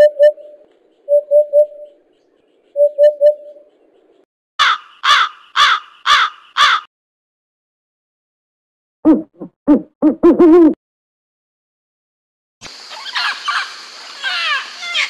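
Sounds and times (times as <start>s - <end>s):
crow cawing: 4.6s - 6.9s.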